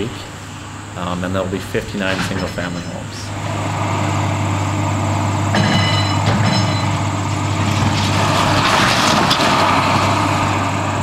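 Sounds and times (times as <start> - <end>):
excavator diesel engine: 0.0 - 11.0
material breaking: 7.6 - 10.1.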